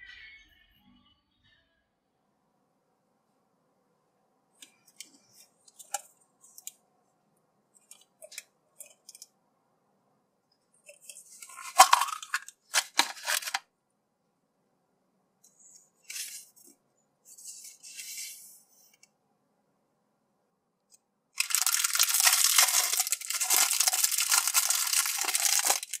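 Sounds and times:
paper rustling: 10.9s - 13.6s, 16.0s - 16.6s, 17.3s - 18.6s, 21.4s - 26.0s.

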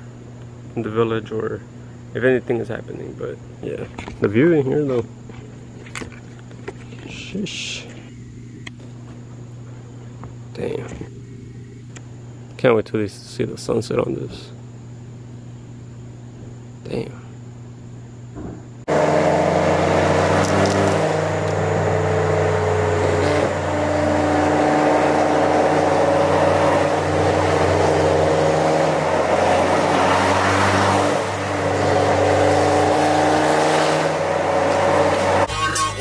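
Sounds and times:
car engine droning: 18.8s - 36.0s
tyre and road noise: 18.9s - 35.5s.

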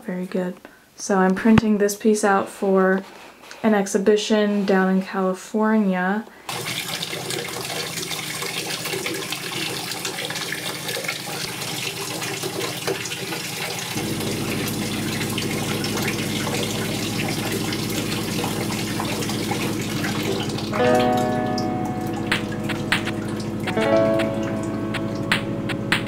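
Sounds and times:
tap water splashing into tray: 6.5s - 26.0s
low steady hum: 14.0s - 26.0s.

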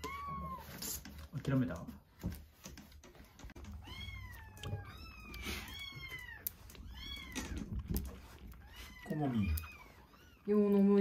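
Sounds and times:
kittens meowing: 0.0s - 0.8s, 3.6s - 10.9s.

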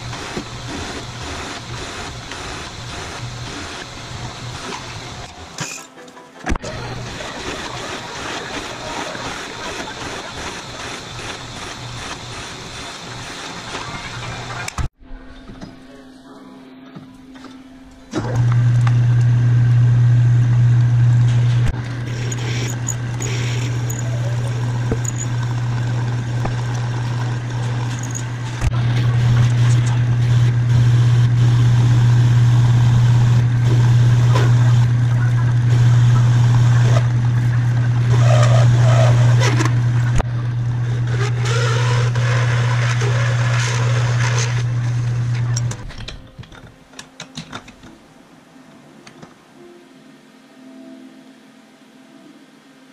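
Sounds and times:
drill scraping through metal: 6.7s - 14.6s, 21.1s - 45.8s
metal lathe humming: 18.1s - 45.8s.

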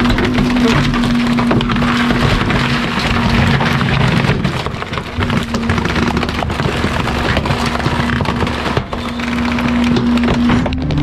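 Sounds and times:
crackling and clattering: 0.0s - 11.0s
truck engine hum: 9.0s - 11.0s.

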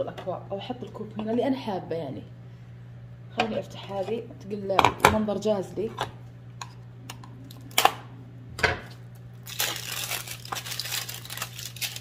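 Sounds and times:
packaging crinkling and tearing: 9.4s - 12.0s.

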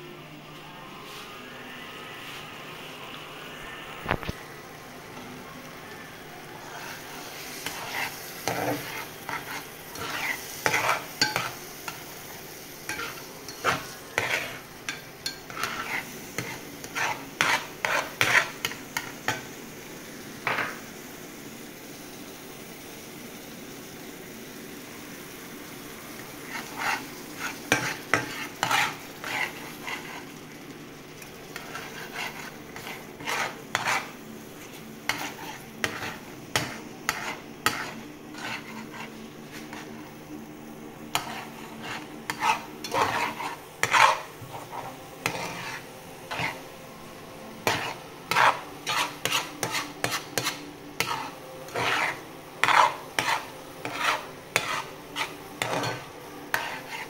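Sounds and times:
frying sizzle: 0.0s - 57.0s
metal spatula scraping pan: 6.6s - 19.5s, 26.4s - 30.4s, 31.5s - 40.0s, 41.1s - 46.7s, 47.6s - 57.0s.

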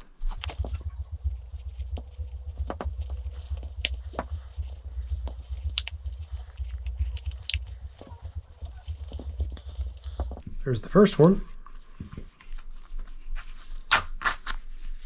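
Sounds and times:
ear seal rubbing and creaking: 0.3s - 10.4s
low rumble: 0.4s - 10.5s.

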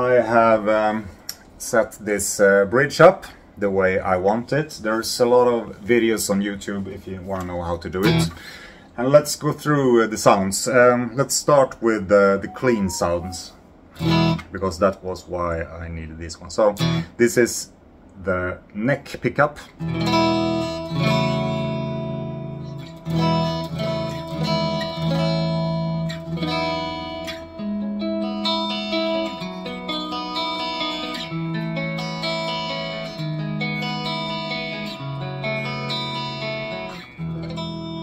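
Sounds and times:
clean electric guitar: 12.4s - 14.4s, 19.8s - 38.0s.

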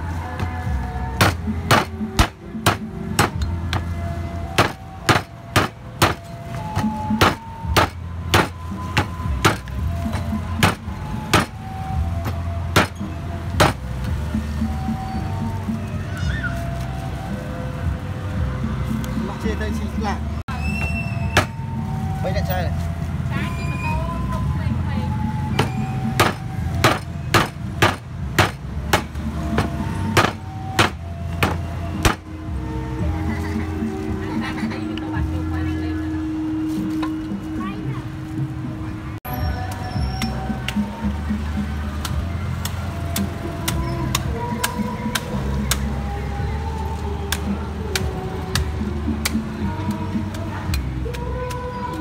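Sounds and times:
cleaver chopping on wooden block: 1.2s - 3.9s, 4.6s - 6.2s, 7.2s - 9.7s, 10.6s - 11.6s, 12.8s - 13.0s, 13.6s - 13.8s, 25.6s - 32.3s.

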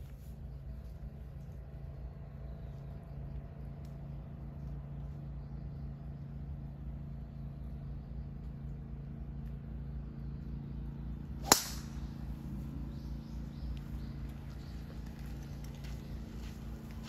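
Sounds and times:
low hum: 0.0s - 17.0s
golf club striking ball: 11.4s - 12.1s.

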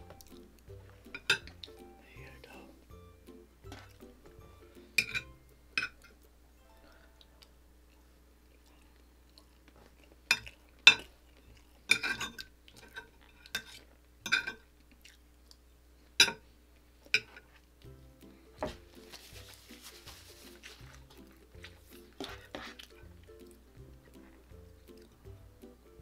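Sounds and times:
cutlery clinking on a plate: 1.1s - 1.5s, 5.0s - 6.1s, 11.9s - 14.6s, 17.1s - 17.5s.

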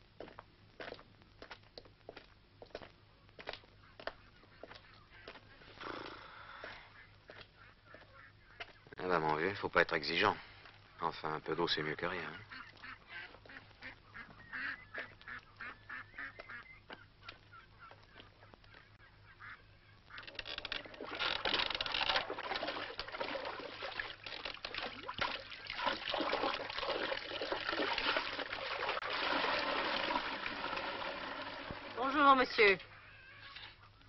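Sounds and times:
ducks and geese honking and quacking: 3.8s - 5.8s, 6.9s - 9.3s, 11.8s - 22.3s, 31.8s - 34.0s.

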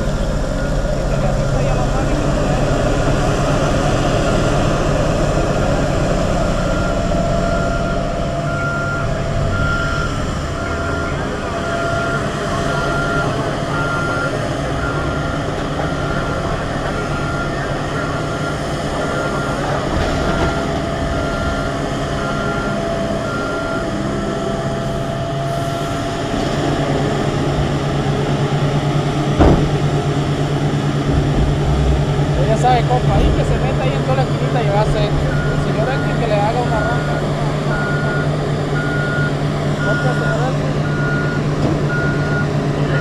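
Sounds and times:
mining shovel engines running: 0.0s - 43.0s
reversing alarm beeping: 0.1s - 26.3s, 32.4s - 43.0s
heavy thud: 29.3s - 30.1s, 31.0s - 32.4s.

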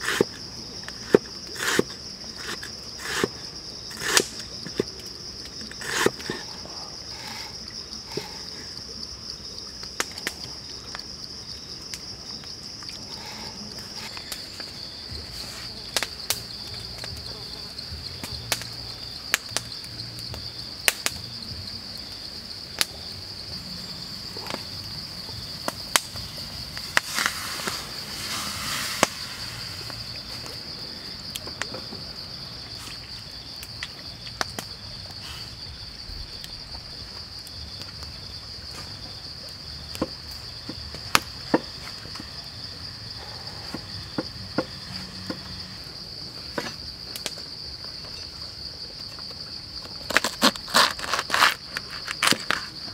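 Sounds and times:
insects droning: 0.0s - 52.9s
brief hiss: 26.8s - 30.1s.

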